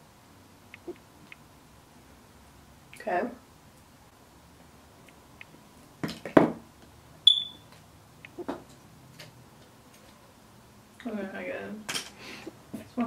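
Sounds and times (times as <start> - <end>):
short high electronic beep: 7.3 - 7.6.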